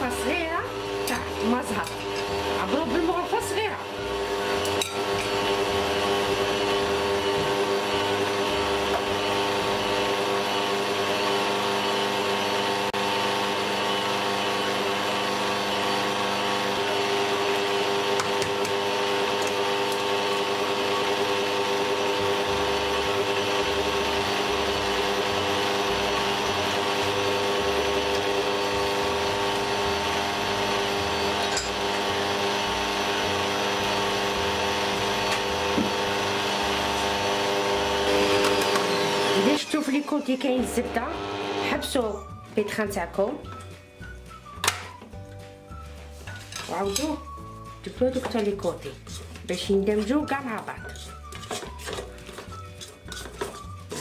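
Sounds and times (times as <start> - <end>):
stand mixer motor whine: 0.0 - 41.8.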